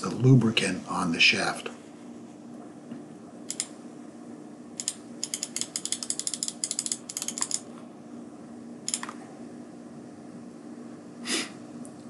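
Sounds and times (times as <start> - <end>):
steady low hum: 0.0 - 12.0
mouse scroll wheel clicking: 4.8 - 7.6, 8.9 - 9.2.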